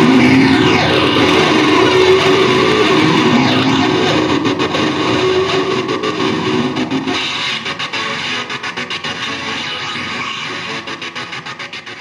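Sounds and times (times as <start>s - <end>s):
low drone: 0.0s - 8.7s
harsh noise guitar: 0.0s - 12.0s.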